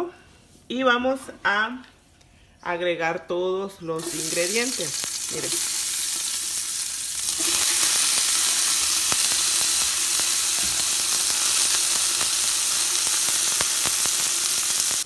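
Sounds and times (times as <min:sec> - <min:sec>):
vegetables sizzling in hot oil: 0:04.0 - 0:15.0.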